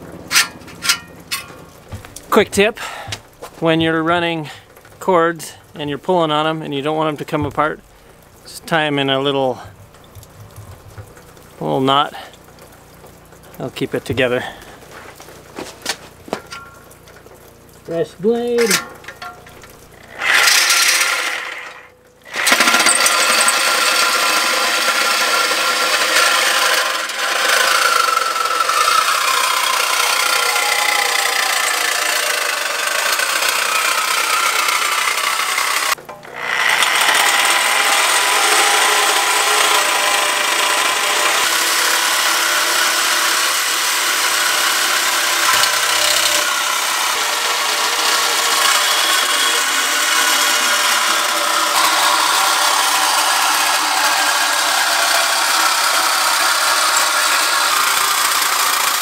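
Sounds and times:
reciprocating saw cutting metal: 0.0 - 3.1, 18.5 - 59.0.

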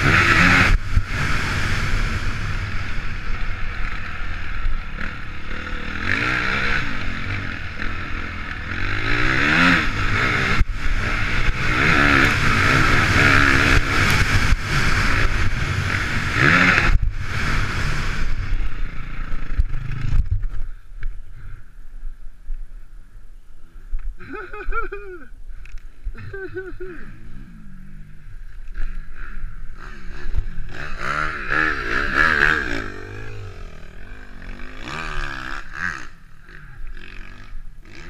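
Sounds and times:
wind noise: 0.0 - 5.1, 9.2 - 27.0
motocross bike engine revving: 0.0 - 20.4, 26.2 - 38.0.

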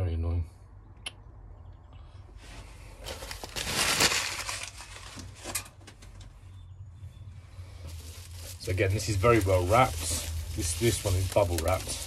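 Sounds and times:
bubble wrap crinkling: 3.0 - 5.6, 7.8 - 12.0.

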